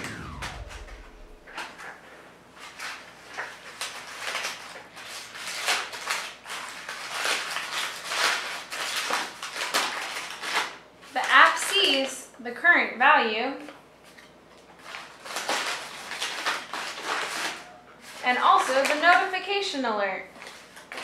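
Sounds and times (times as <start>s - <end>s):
paper crinkling and rustling: 3.8s - 10.7s.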